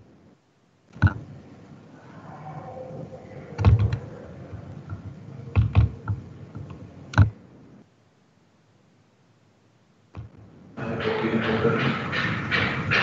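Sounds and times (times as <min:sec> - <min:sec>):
clicks and knocks at computer: 0:00.9 - 0:01.3, 0:03.6 - 0:07.4, 0:10.1 - 0:10.4.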